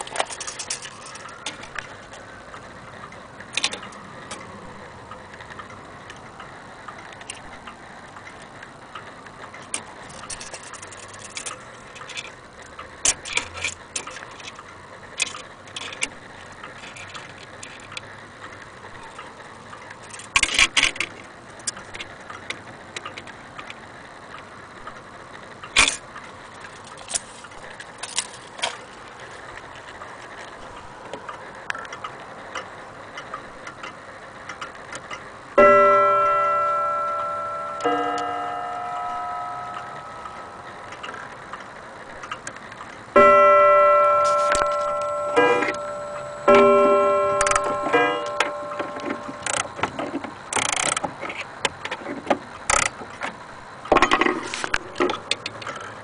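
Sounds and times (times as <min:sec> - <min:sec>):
clock gong strike: 0:35.6 - 0:41.1, 0:43.2 - 0:49.8
wall clock ticking: 0:35.6 - 0:51.0.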